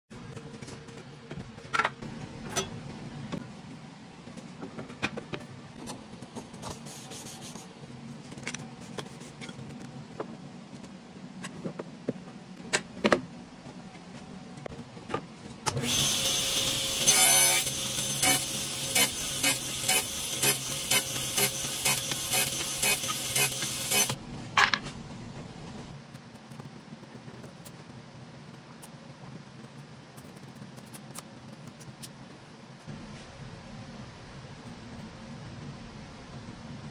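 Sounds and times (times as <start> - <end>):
table saw cutting wood: 15.7 - 24.2
table saw running: 15.7 - 24.2.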